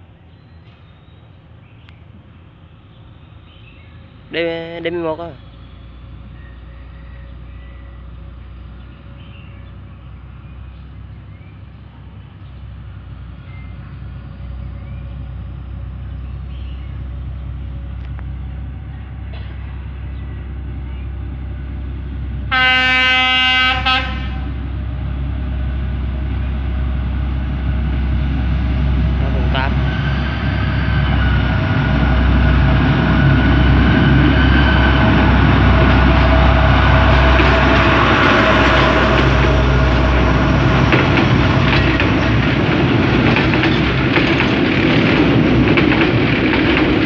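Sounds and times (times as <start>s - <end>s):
locomotive rumbling: 0.0s - 47.0s
locomotive horn blast: 22.5s - 24.6s.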